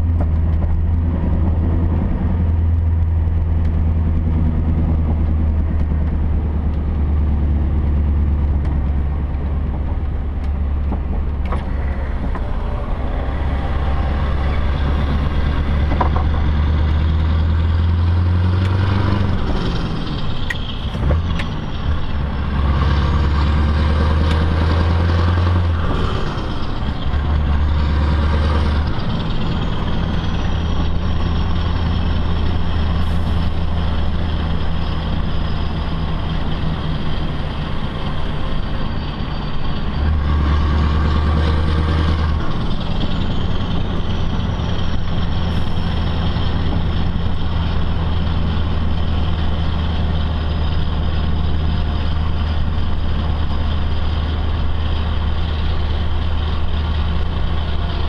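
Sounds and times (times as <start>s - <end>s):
diesel truck engine running: 0.0s - 58.0s.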